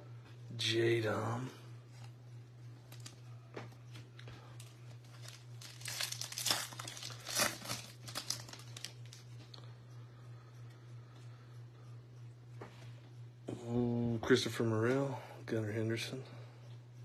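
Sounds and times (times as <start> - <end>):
cards rustling: 4.6 - 9.2
foil wrapper crinkling and tearing: 4.6 - 9.3.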